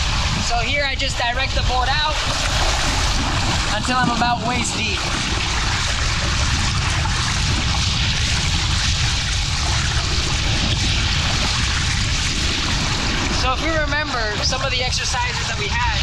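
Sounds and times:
shallow surf washing: 0.0 - 16.0
wind rumble on microphone: 0.0 - 16.0
water splashing around legs: 2.1 - 13.5.

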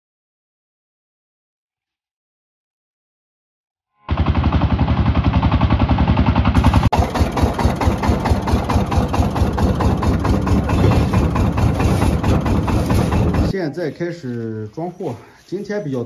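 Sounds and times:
truck engine chugging: 4.1 - 13.5.

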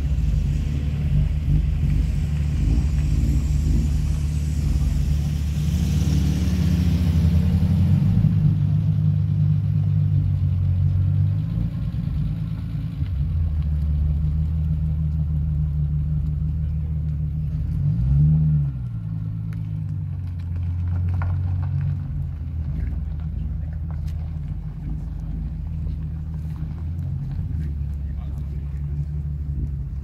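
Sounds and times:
car driving past: 0.0 - 9.7
car engines idling: 0.0 - 30.0.

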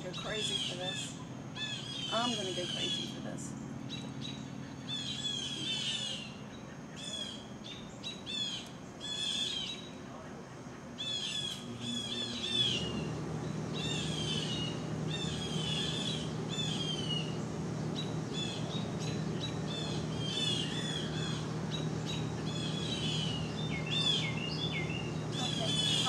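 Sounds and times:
songbird singing: 0.0 - 26.0
steady low hum: 0.0 - 26.0.

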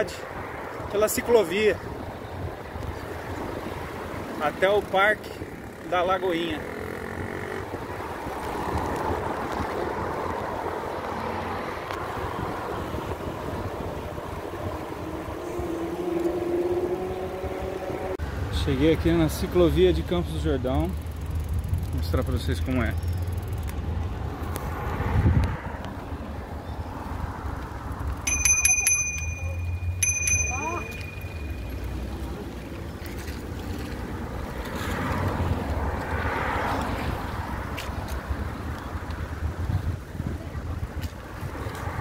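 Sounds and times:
road noise: 0.0 - 42.0
wind and rolling noise: 0.0 - 42.0
wind buffeting microphone: 12.0 - 18.2, 23.8 - 29.2, 33.5 - 42.0
bicycle bell ringing: 28.1 - 32.4.

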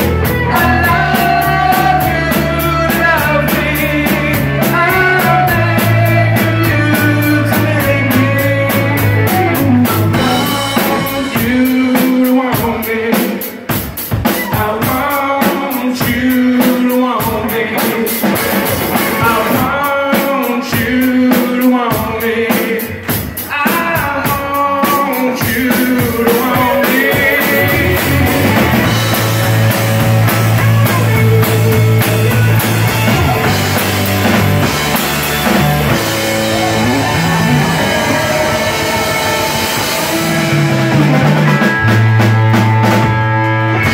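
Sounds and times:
electric bass line: 0.0 - 11.8, 26.4 - 43.9
electric guitars: 0.0 - 12.6, 24.8 - 43.9
drum kit: 0.0 - 43.9
keyboard: 26.5 - 43.9.

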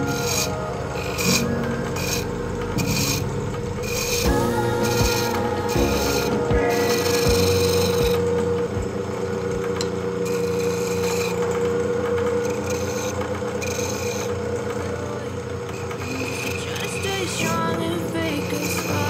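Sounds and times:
wood lathe humming: 0.0 - 17.1.

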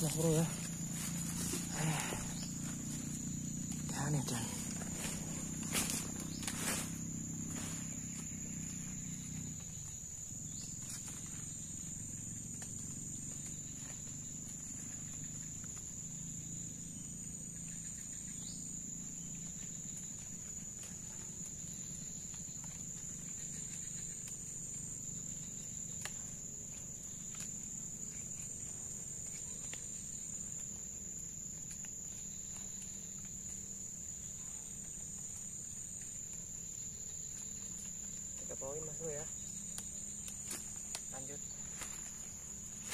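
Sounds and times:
insects droning: 0.0 - 42.9.

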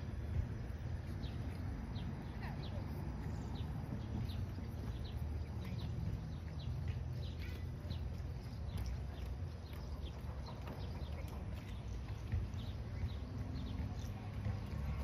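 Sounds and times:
small birds chirping: 0.0 - 15.0
steady low rumble: 0.0 - 15.0.

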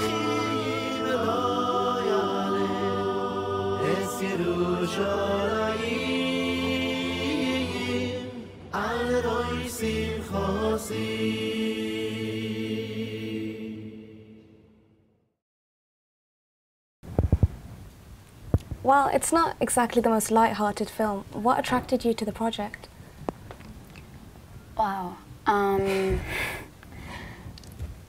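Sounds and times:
men chanting a prayer: 0.0 - 11.3.

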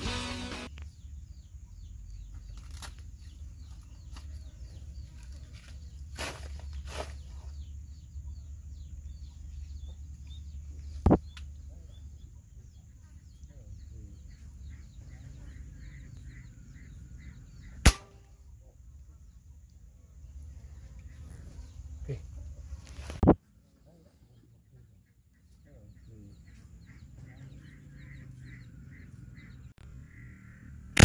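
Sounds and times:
small birds chirping: 0.0 - 31.0
air rifle shots: 17.8 - 18.3.

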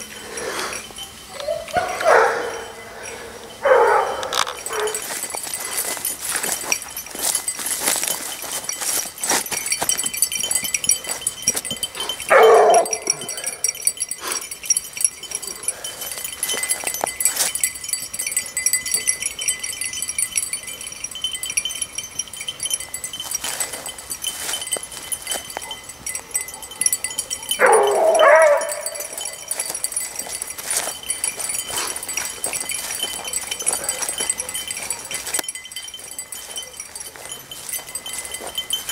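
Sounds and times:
continuous high ringing: 0.0 - 38.9
hound baying: 0.3 - 6.0, 11.9 - 14.5, 25.6 - 35.4.

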